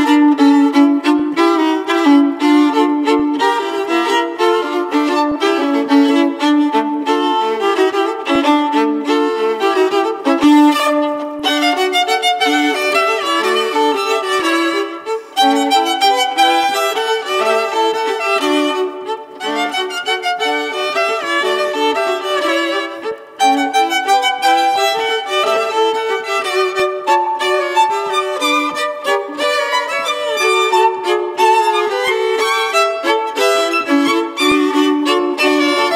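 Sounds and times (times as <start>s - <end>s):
solo violin playing fast runs: 0.0s - 35.9s.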